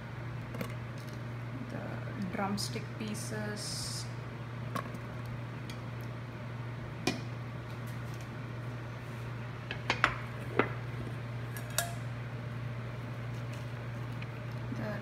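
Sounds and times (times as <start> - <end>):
range hood fan humming: 0.0 - 15.0.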